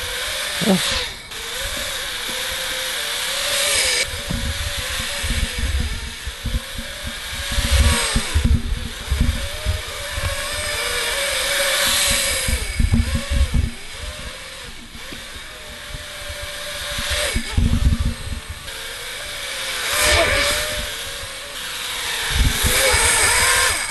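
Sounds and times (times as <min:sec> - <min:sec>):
drone propellers whining: 0:00.0 - 0:23.9
wind buffeting microphone: 0:04.0 - 0:18.9, 0:22.1 - 0:23.9.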